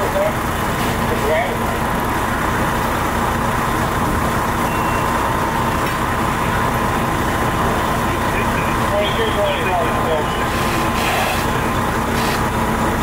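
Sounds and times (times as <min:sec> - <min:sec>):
fire engine motor running: 0:00.0 - 0:13.0
thin high tone: 0:04.6 - 0:05.3.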